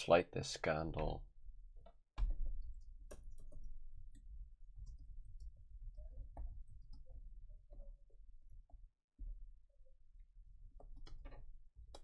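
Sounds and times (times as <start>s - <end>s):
keyboard and mouse clicks: 1.8s - 7.1s, 10.8s - 12.0s.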